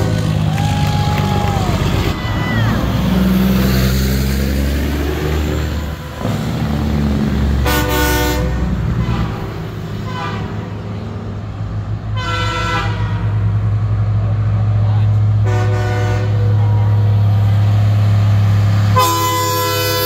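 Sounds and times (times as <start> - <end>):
heavy trucks rumbling past: 0.0 - 20.0
loud air horn blast: 7.6 - 10.8, 12.1 - 13.5, 15.4 - 16.6, 18.9 - 20.0.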